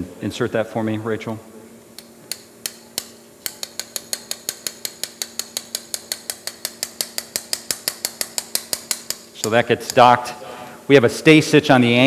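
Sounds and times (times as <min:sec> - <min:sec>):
mallet tapping metal inserter: 0:02.0 - 0:10.2.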